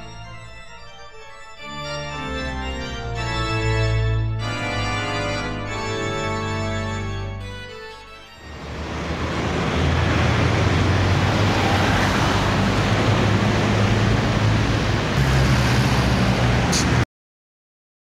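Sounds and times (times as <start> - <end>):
heavier engine: 8.4 - 17.0
passing cars: 8.4 - 17.0.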